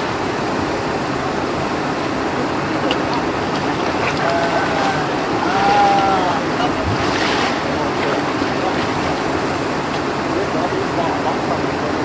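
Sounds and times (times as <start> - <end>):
river flowing over rocks: 0.0 - 12.0
faint voices: 2.5 - 9.2.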